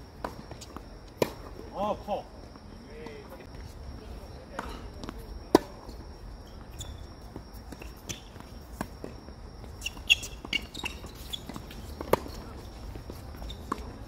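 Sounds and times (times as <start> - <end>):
footsteps on court: 0.2 - 1.6, 2.4 - 14.0
racket hitting tennis ball: 1.2 - 1.5, 9.8 - 14.0.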